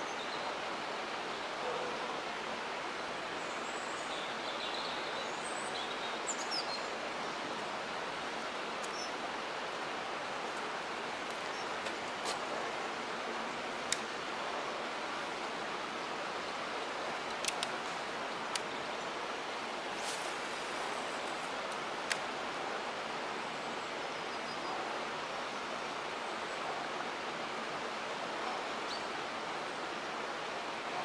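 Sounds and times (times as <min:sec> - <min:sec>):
running water: 0:00.0 - 0:31.0
sharp clicks: 0:17.3 - 0:17.8.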